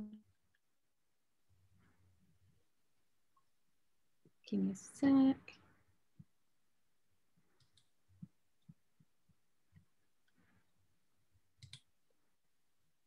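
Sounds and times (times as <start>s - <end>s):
computer mouse clicks: 7.5s - 8.8s, 11.6s - 11.9s.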